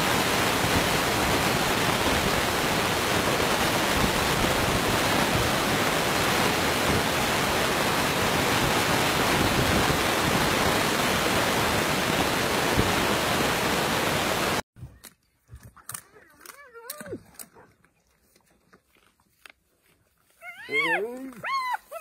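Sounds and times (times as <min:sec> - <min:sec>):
steady loud hiss: 0:00.0 - 0:14.6.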